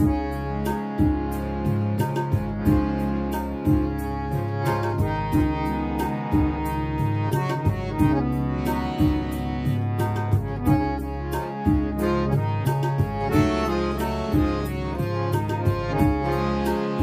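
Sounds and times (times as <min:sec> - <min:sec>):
harmonium melody: 0:00.0 - 0:17.0
sharp percussive strikes: 0:00.0 - 0:17.0.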